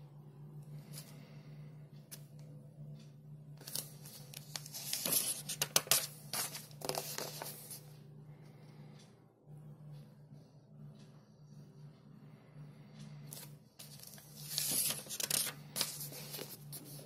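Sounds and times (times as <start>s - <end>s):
paper pages turning: 3.6s - 7.8s, 13.3s - 17.0s.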